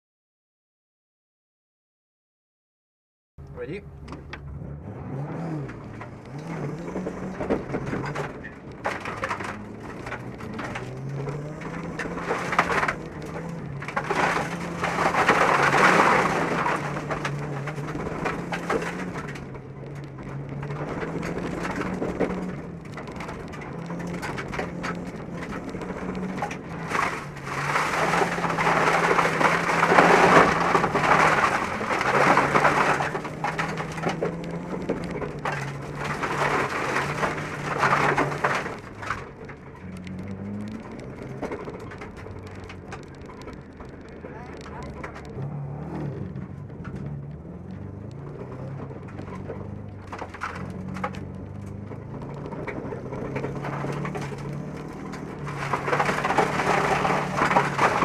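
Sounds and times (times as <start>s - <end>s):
car engine revving: 3.4s - 58.0s
gravel spraying against car: 8.0s - 58.0s.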